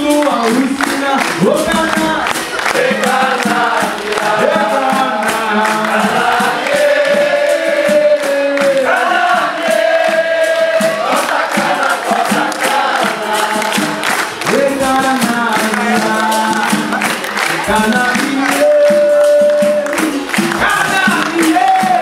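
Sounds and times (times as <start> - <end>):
chorus singing: 0.0 - 22.0
hand clapping: 0.0 - 22.0
hand drum: 0.0 - 22.0.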